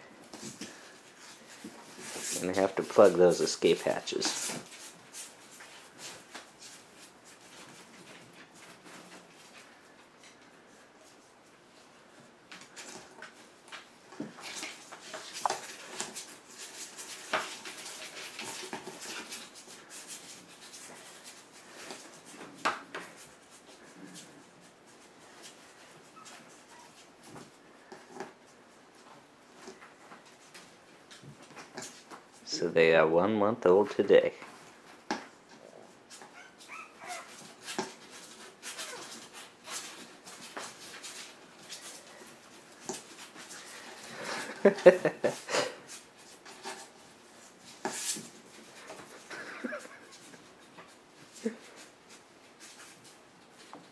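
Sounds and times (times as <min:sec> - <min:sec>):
small paws scratching: 0:00.2 - 0:32.5, 0:34.4 - 0:53.9
puppy claws scratching cardboard: 0:14.2 - 0:28.4, 0:35.1 - 0:44.1
puppies whimpering and yipping: 0:36.2 - 0:37.5.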